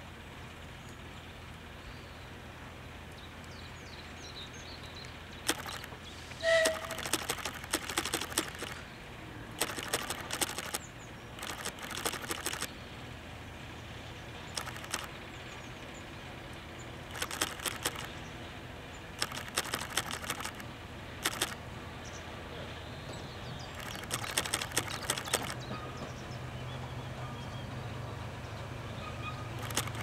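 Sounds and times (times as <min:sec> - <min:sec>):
low rumble of rolling coaches: 0:00.0 - 0:07.0, 0:08.8 - 0:09.6, 0:12.7 - 0:17.1, 0:18.1 - 0:19.2, 0:20.6 - 0:23.8, 0:25.5 - 0:29.6
wheels clicking over rail joints: 0:05.0 - 0:08.9, 0:09.5 - 0:12.7, 0:14.4 - 0:21.7, 0:22.6 - 0:26.4, 0:29.1 - 0:30.0.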